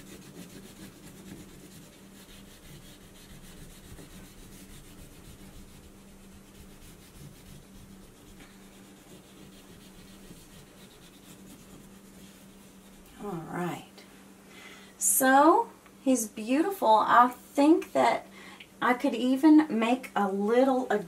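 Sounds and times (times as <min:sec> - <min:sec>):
wax crayon rubbing on paper: 0:00.0 - 0:13.3
low steady hum: 0:00.0 - 0:21.0.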